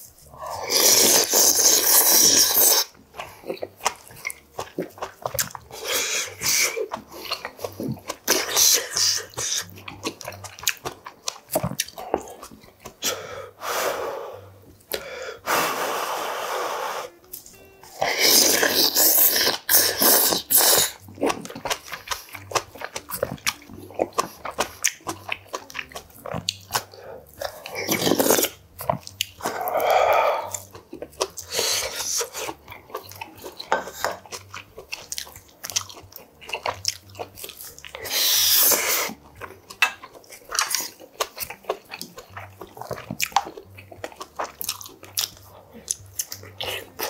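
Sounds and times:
slurping soup: 0.0 - 10.2, 17.9 - 23.0, 23.9 - 35.1, 37.7 - 41.4
chewing and biting: 0.2 - 13.2, 17.3 - 47.0.

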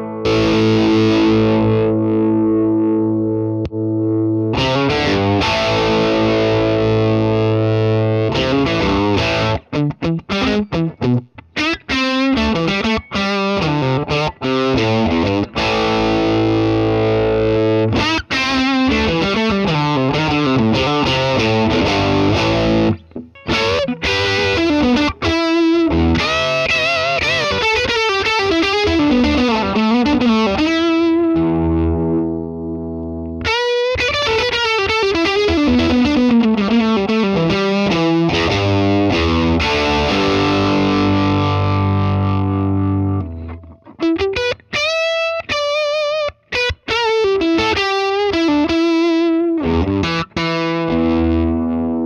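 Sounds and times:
distorted electric guitar lead: 0.0 - 52.0.

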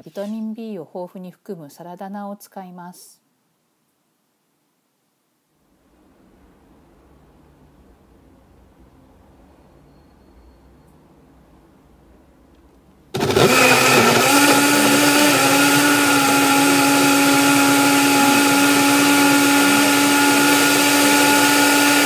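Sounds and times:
blender motor running: 13.2 - 22.0.

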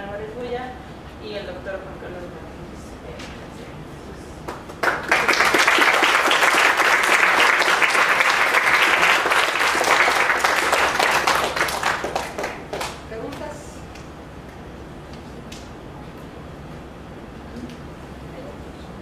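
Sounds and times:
audience applauding: 4.5 - 13.0.

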